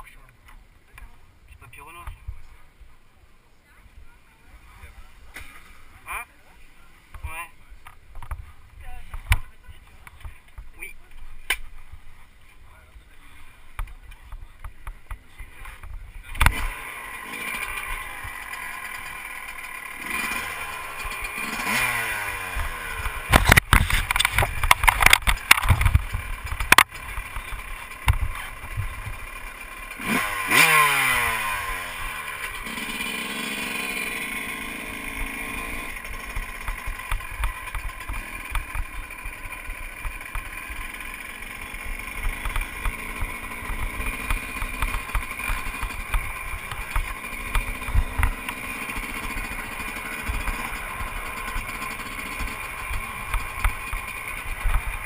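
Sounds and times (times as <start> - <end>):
motocross bike engine revving: 13.0 - 55.0
sharp engine cracks: 13.8 - 32.9, 35.1 - 55.0.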